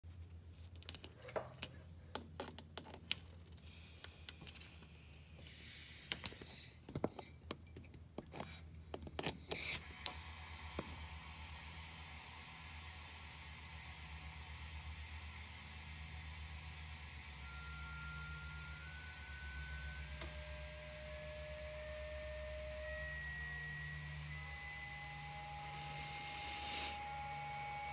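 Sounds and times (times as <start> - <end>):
compressed air hissing: 3.6 - 7.2, 9.4 - 27.9.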